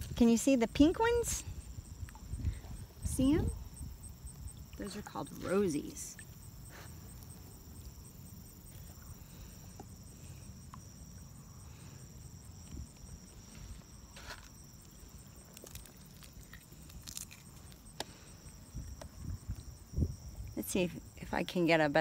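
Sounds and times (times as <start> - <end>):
wind rumbling on microphone: 0.0 - 6.6, 18.2 - 21.4
insects trilling: 0.0 - 22.0.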